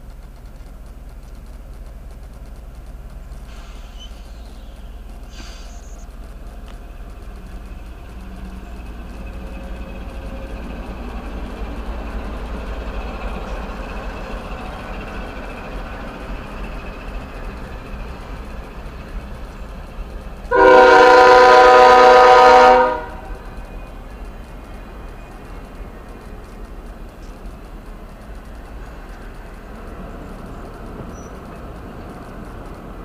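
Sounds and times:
train wheels rumbling: 0.0s - 33.0s
locomotive air horn blast: 20.5s - 23.4s.

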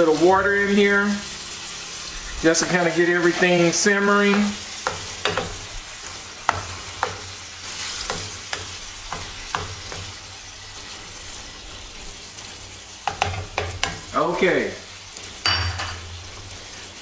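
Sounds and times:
chicken sizzling in a frying pan: 0.0s - 17.0s
spoon knocking against pan: 4.3s - 5.6s, 6.4s - 7.4s, 8.0s - 10.1s, 13.0s - 14.1s.

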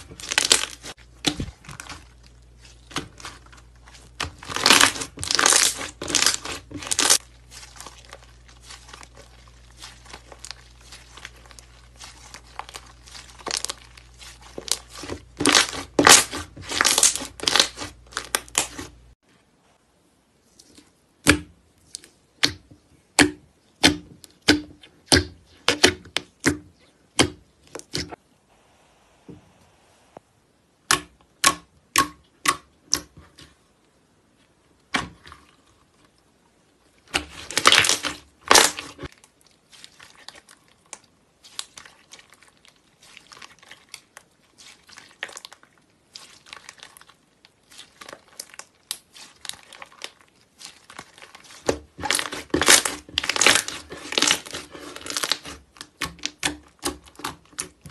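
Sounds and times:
slime popping and crackling: 0.0s - 18.9s, 37.0s - 57.9s.

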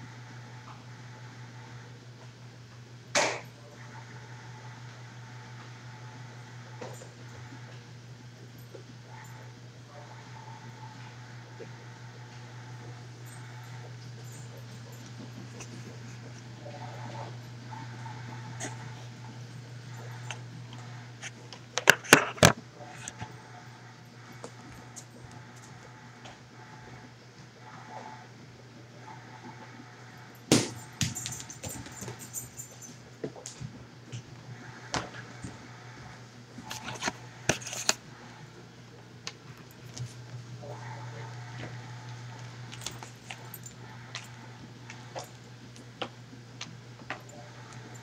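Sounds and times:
steady low hum: 0.0s - 48.0s
ball knocking on hard floor: 30.5s - 31.2s.

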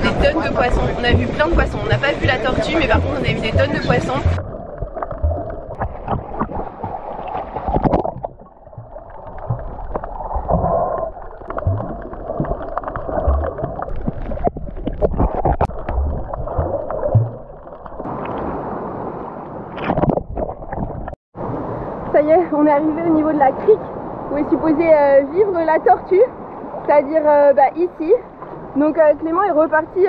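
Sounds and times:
muffled underwater gurgling: 0.0s - 18.1s
knocks and thumps underwater: 0.0s - 18.4s, 19.8s - 21.2s
swimmer splashing: 0.0s - 20.0s.

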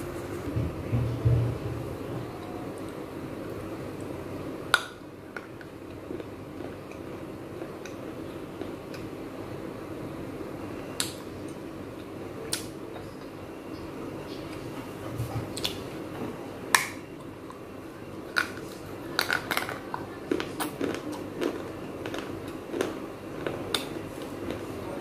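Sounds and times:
teeth crunching clay pot: 18.3s - 23.9s.

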